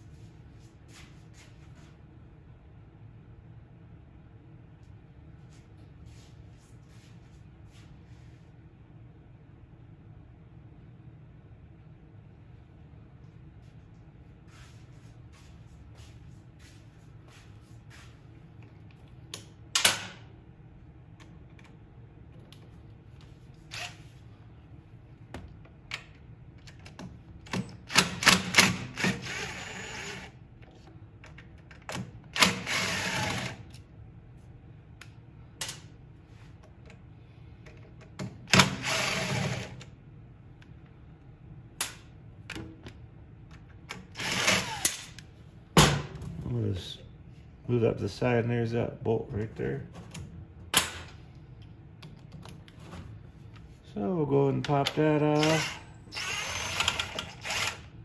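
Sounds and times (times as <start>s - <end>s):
cordless driver running: 29.0s - 30.3s, 32.4s - 33.6s, 44.2s - 45.0s, 55.4s - 57.9s.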